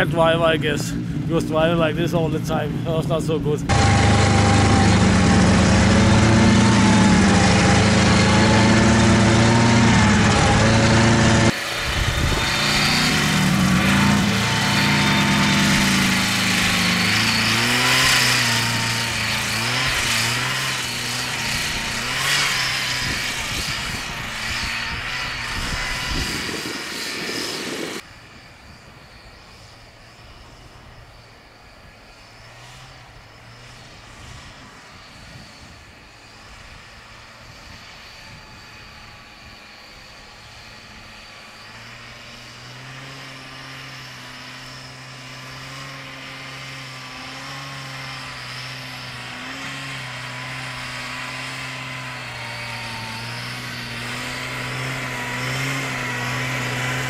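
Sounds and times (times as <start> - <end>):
snowmobile engine running: 0.0 - 28.0, 40.2 - 57.0.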